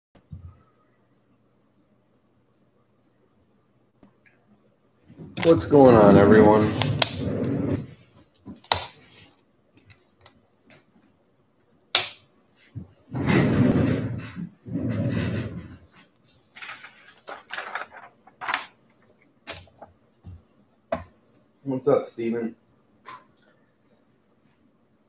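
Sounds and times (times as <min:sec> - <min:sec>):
muffled handling noise: 0:12.6 - 0:21.5.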